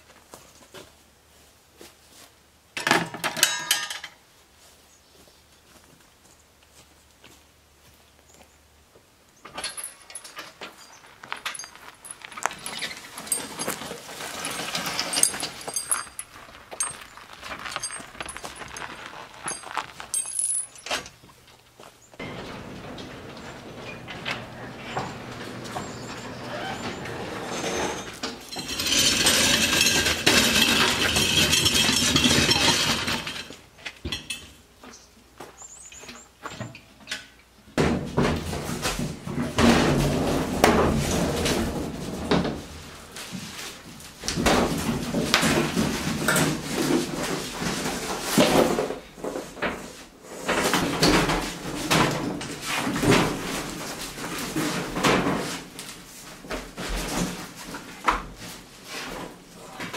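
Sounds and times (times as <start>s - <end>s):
hand truck wheels rolling: 9.5s - 34.4s, 38.3s - 59.9s
metal cabinet knocking and rattling: 22.2s - 33.3s, 37.8s - 42.8s.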